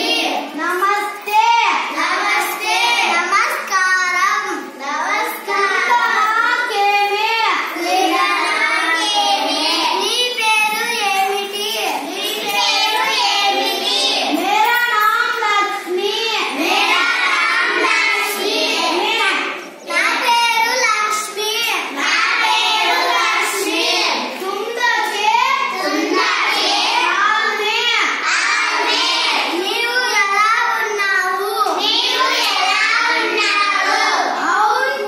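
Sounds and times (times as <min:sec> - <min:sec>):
boys singing: 0:07.7 - 0:11.2, 0:12.0 - 0:15.2, 0:16.6 - 0:20.9, 0:21.9 - 0:24.4, 0:25.7 - 0:30.9, 0:31.8 - 0:35.0.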